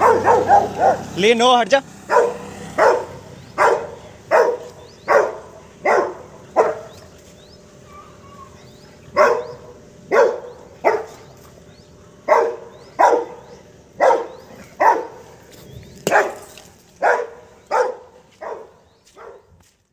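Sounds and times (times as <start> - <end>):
dog barking sharply: 0.0 - 1.2, 2.1 - 7.0, 9.2 - 11.3, 12.3 - 15.2, 16.1 - 19.5.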